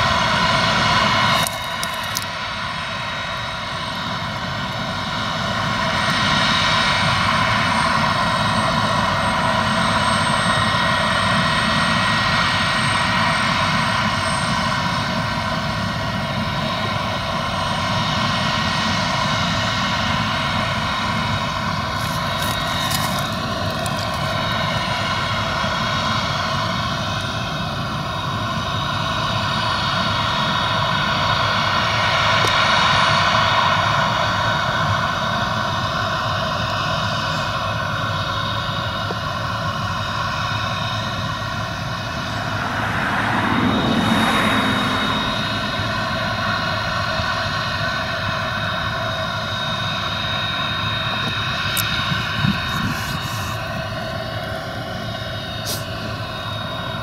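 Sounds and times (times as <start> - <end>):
combine harvester droning: 0.0 - 57.0
rushing noise: 41.2 - 48.3.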